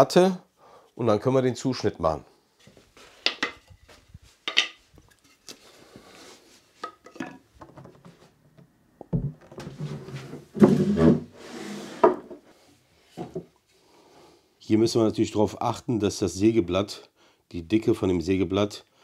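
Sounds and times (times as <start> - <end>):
wood scraping and knocking: 2.6 - 5.6, 6.8 - 12.5, 13.1 - 13.5
wooden battens knocking on concrete: 3.2 - 3.8, 4.4 - 4.8, 6.8 - 8.1, 9.0 - 9.8.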